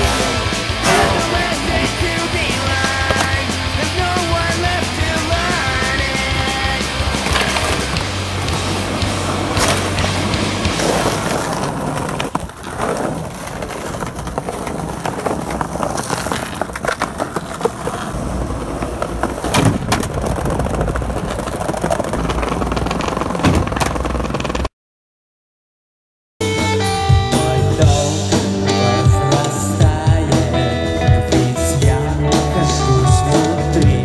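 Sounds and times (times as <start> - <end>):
city traffic rumble: 0.0 - 24.7
skateboard clacks: 0.0 - 24.7
skateboard wheels rolling on pavement: 0.0 - 24.7, 27.9 - 34.0.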